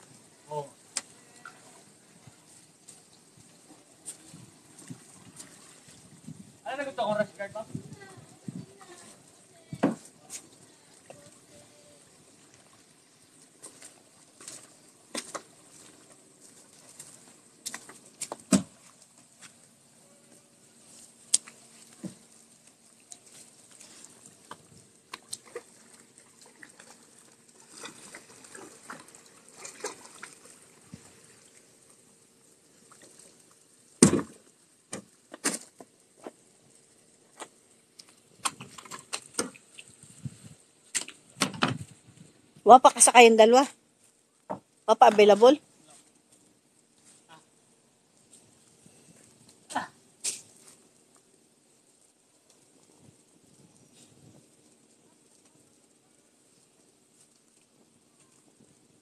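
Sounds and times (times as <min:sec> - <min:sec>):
paddle splashing in water: 0:00.8 - 0:06.6, 0:20.8 - 0:32.0.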